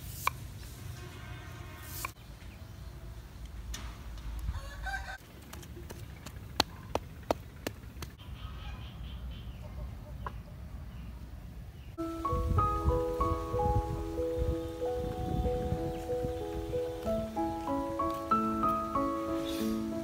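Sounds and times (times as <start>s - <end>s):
rooster crowing: 4.4s - 5.2s
chickens clucking: 4.5s - 11.1s, 15.6s - 20.0s.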